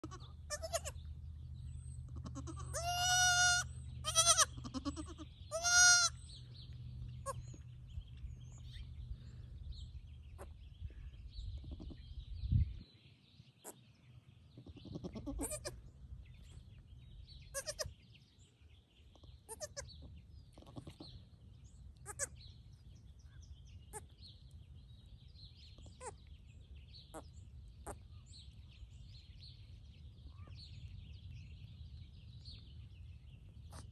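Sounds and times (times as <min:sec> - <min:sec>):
goat kid bleating: 0:00.0 - 0:01.1, 0:02.0 - 0:06.3, 0:07.2 - 0:07.6, 0:11.6 - 0:12.1, 0:14.6 - 0:15.8, 0:17.4 - 0:18.0, 0:19.4 - 0:21.1, 0:22.0 - 0:22.4.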